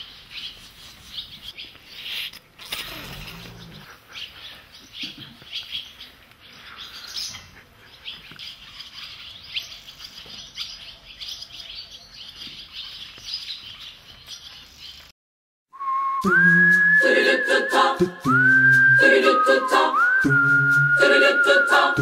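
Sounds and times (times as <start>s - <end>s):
small birds chirping: 0.0s - 15.1s.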